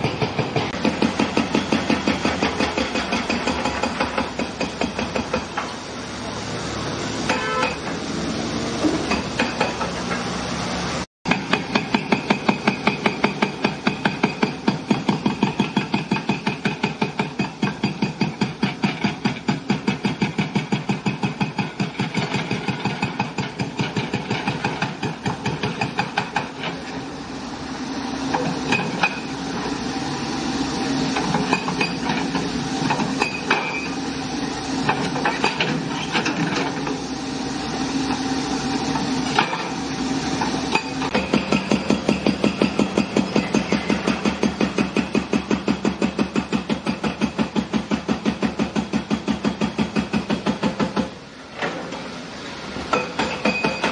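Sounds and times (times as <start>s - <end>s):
hydraulic breaker hammering concrete: 0.0s - 5.8s, 7.2s - 8.0s, 11.3s - 26.9s, 34.8s - 36.9s, 40.4s - 51.2s, 52.8s - 53.9s.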